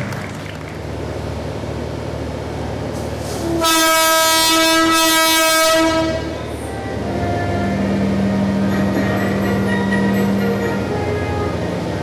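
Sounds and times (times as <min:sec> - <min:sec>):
train horn long blast: 0:03.4 - 0:06.4.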